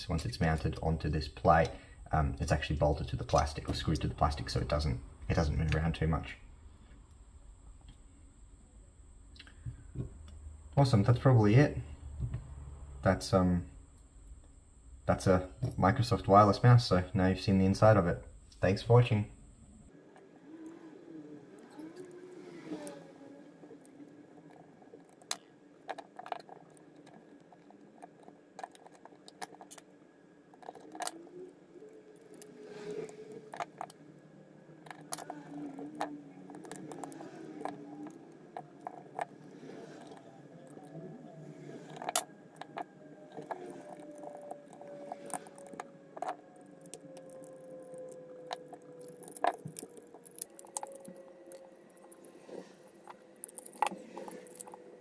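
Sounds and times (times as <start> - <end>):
plastic parts clicking and tapping: 23.8 - 29.9, 30.5 - 31.2, 34.8 - 41.0, 41.8 - 55.0.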